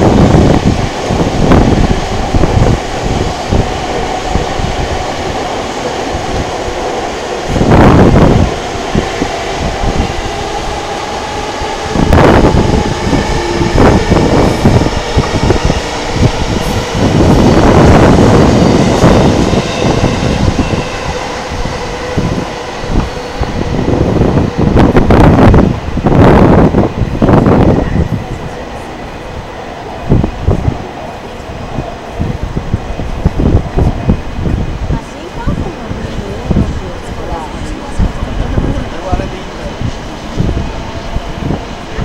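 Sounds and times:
electric trains rumbling: 0:00.0 - 0:42.0
wind buffeting microphone: 0:00.0 - 0:42.0.

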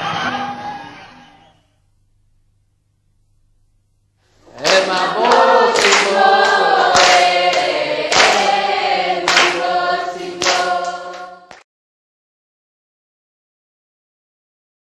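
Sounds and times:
group of voices singing: 0:04.4 - 0:11.6.

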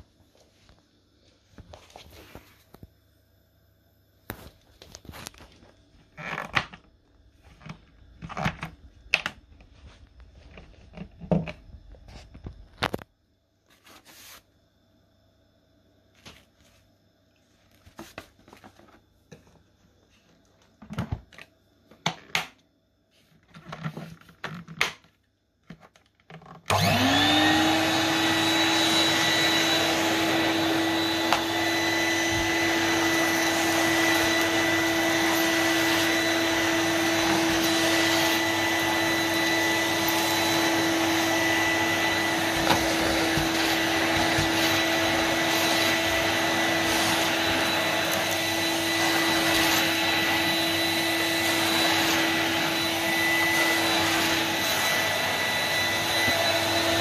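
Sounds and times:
vacuum cleaner whine and suction: 0:04.2 - 0:13.1, 0:25.7 - 0:57.0.

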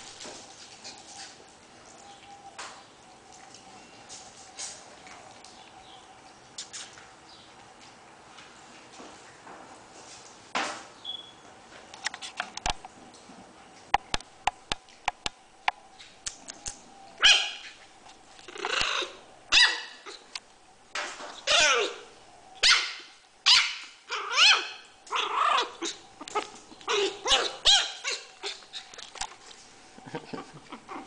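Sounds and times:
puppy barking high-pitched: 0:17.2 - 0:17.8, 0:19.0 - 0:20.2, 0:21.5 - 0:22.0, 0:22.6 - 0:26.0, 0:26.9 - 0:28.9.

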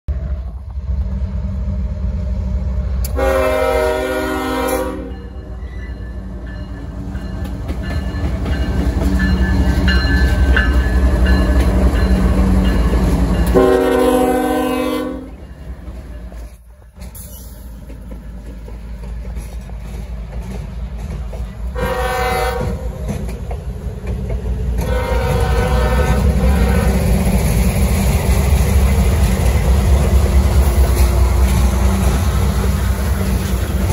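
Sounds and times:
diesel locomotive engine rumble: 0:00.1 - 0:33.9
train air horn blasts: 0:03.0 - 0:05.4, 0:13.4 - 0:15.4, 0:21.7 - 0:23.0, 0:24.8 - 0:27.2.

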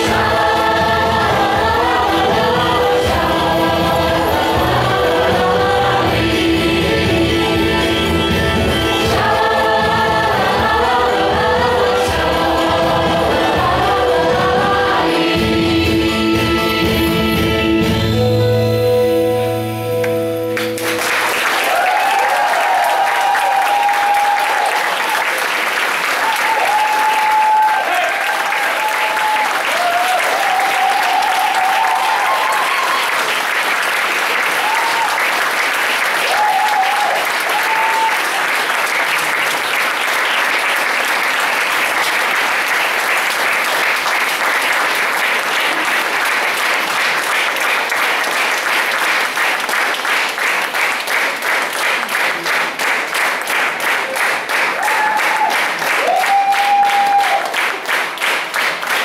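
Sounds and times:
rhythmic clapping in unison: 0:00.0 - 0:16.4, 0:20.0 - 0:59.0
audience applauding: 0:20.0 - 0:59.0.

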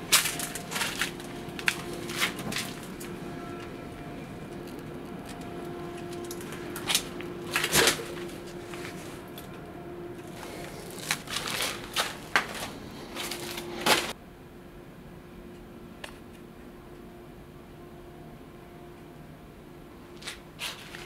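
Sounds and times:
crunching footsteps on debris: 0:00.0 - 0:09.6, 0:10.2 - 0:14.2, 0:20.2 - 0:21.0
faint steady hum: 0:00.0 - 0:21.0.

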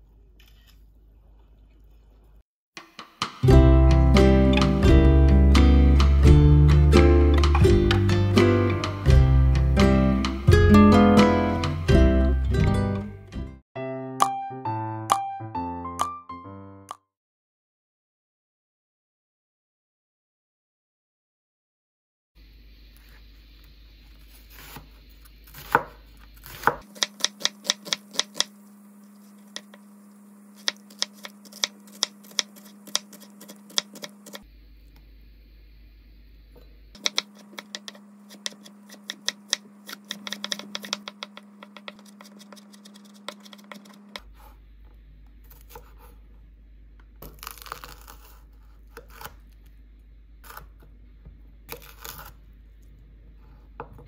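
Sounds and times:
knife chopping on wooden board: 0:25.5 - 0:28.5, 0:30.6 - 0:34.4, 0:37.0 - 0:44.3.

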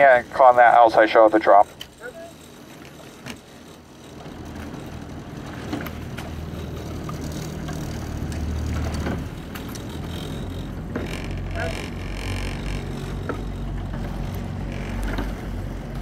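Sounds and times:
motorboat engine humming: 0:00.0 - 0:16.0.

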